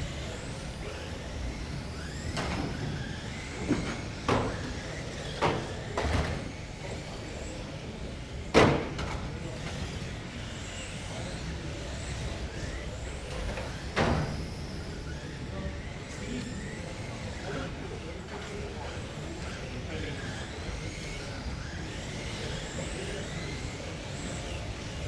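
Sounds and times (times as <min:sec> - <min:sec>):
rc car motors whining: 0:00.0 - 0:25.0.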